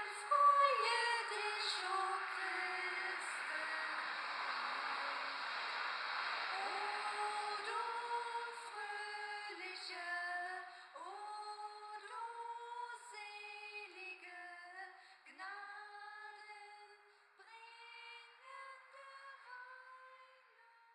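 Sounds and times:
woman singing slow melody: 0.0 - 5.3, 6.5 - 20.9.

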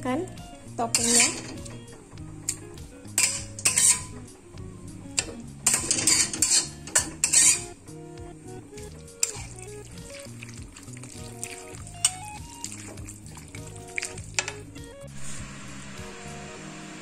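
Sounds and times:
background music: 0.0 - 17.0
spatula scraping steel pan: 0.8 - 1.8, 2.5 - 4.3, 5.2 - 7.8, 8.9 - 14.6.

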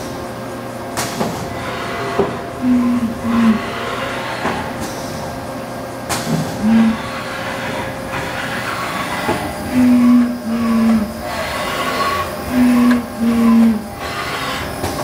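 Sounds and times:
lathe machine hum: 1.5 - 4.8, 6.5 - 15.0
short pitched whines: 6.6 - 7.1, 9.6 - 11.3, 11.9 - 14.0.

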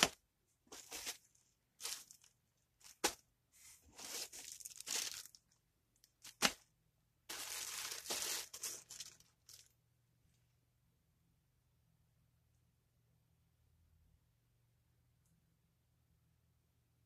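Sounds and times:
plastic packaging crinkling: 0.0 - 3.2, 3.9 - 6.6, 7.3 - 9.8.

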